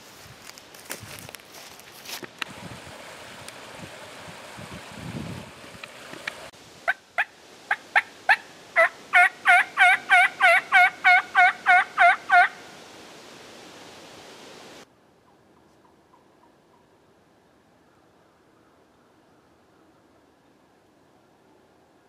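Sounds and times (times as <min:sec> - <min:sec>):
creek water running: 0:00.8 - 0:14.9
turkey yelps on mouth call: 0:06.9 - 0:12.6.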